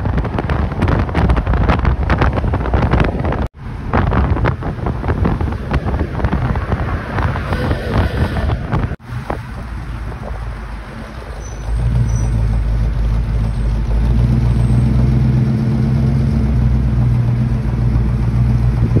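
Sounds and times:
pickup truck engine running: 9.0 - 19.0.

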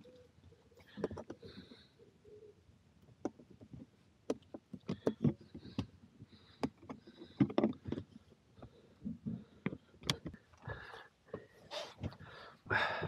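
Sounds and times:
plastic hose fittings clicking: 3.1 - 10.7.

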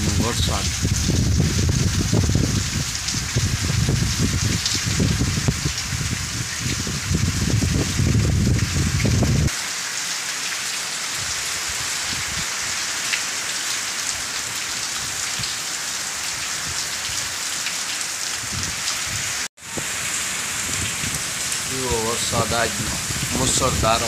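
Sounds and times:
wind rumble on microphone: 0.0 - 9.5, 11.2 - 12.5, 18.4 - 21.7, 22.3 - 24.0
heavy rain on wet ground: 0.0 - 24.0.

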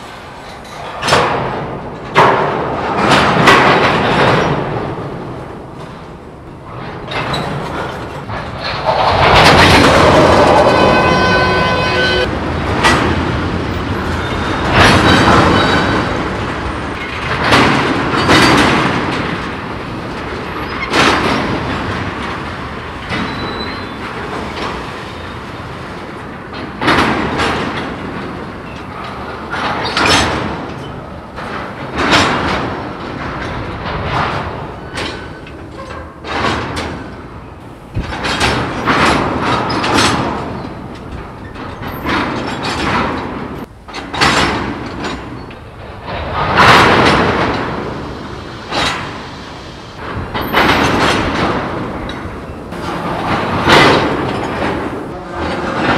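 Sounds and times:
train cars banging and thudding: 0.0 - 55.9
loud metallic screech: 10.2 - 12.3.

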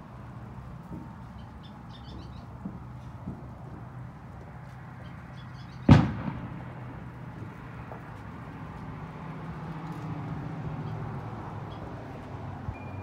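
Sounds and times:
firework bang with echo: 5.9 - 7.1.

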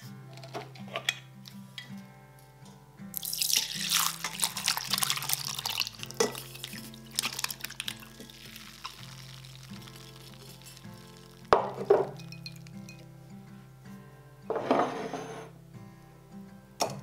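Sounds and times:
background music: 0.0 - 17.0
water running: 3.2 - 12.7.

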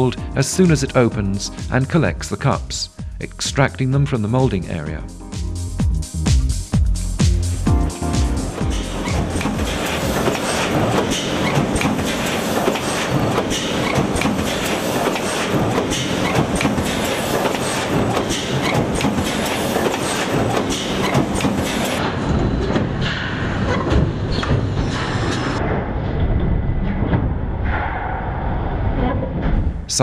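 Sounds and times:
machine mechanical clatter: 8.4 - 28.0.

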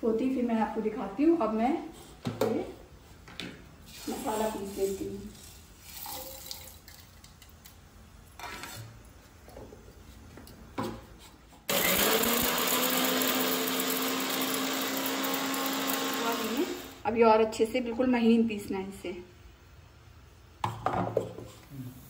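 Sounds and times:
mixer grinder whirring: 11.7 - 17.0.

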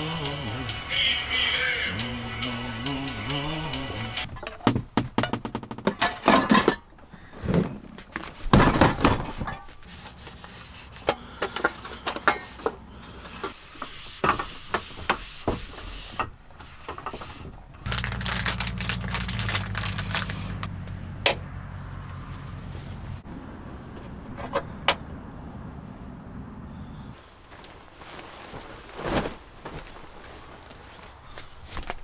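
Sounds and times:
vehicle engine hum: 0.0 - 4.3, 17.4 - 27.4.

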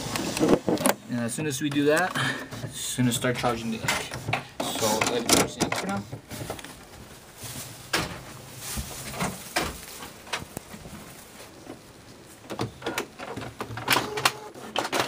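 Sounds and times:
printer mechanical clicks and knocks: 1.6 - 6.2, 12.5 - 15.0.

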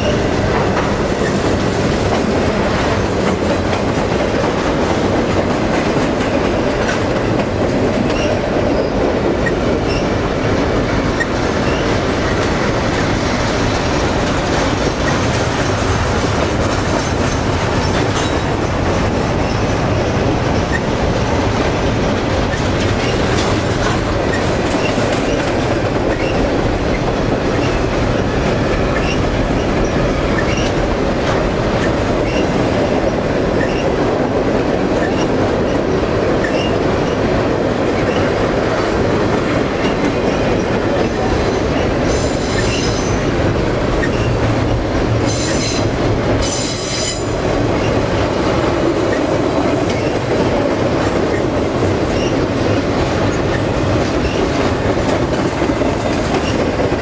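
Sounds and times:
rail clicks: 0.0 - 57.0
train wheels rumbling on rail: 0.0 - 57.0
high-pitched wheel squeal: 45.2 - 47.4.

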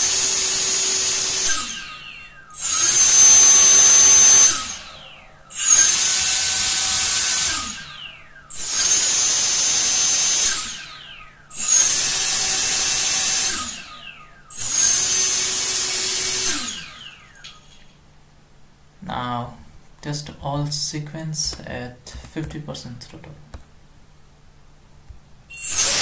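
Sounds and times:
drone motors whining: 0.0 - 18.0, 25.5 - 26.0.

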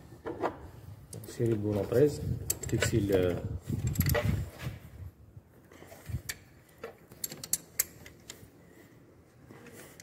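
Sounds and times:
wrench clicking on metal bolt: 7.2 - 8.4.

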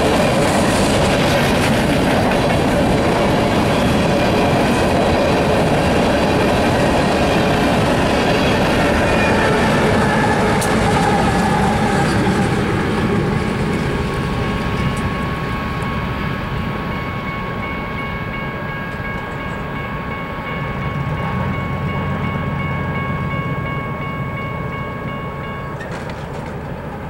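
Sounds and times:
train rumbling: 0.0 - 27.0
level crossing bell ringing: 14.4 - 25.8.

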